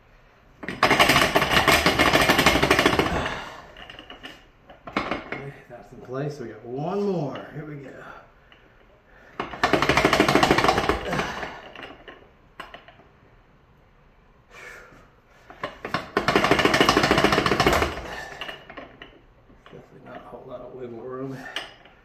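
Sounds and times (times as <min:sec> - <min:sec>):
metal clicking and rattling: 0:00.6 - 0:05.6, 0:09.4 - 0:13.1, 0:15.5 - 0:20.6.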